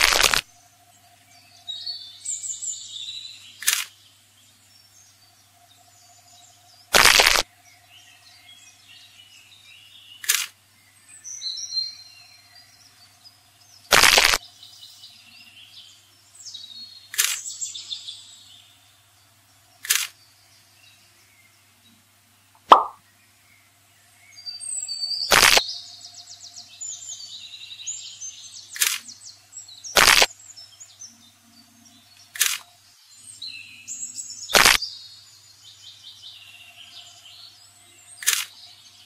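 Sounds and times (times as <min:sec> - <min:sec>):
sharp cracks: 0:00.0 - 0:00.4, 0:03.6 - 0:03.9, 0:07.0 - 0:07.4, 0:10.2 - 0:10.6, 0:13.9 - 0:14.4, 0:17.1 - 0:17.4, 0:19.8 - 0:20.2, 0:22.6 - 0:23.0, 0:25.3 - 0:25.6, 0:28.8 - 0:29.1, 0:30.0 - 0:30.3, 0:32.3 - 0:32.7, 0:34.5 - 0:34.8, 0:38.2 - 0:38.6
birds chirping faintly: 0:00.0 - 0:39.0
faint steady hum: 0:00.0 - 0:39.0.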